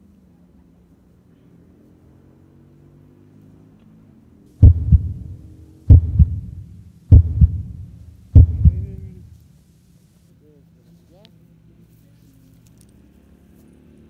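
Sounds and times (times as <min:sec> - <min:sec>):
heavy double thumps: 0:04.6 - 0:09.3.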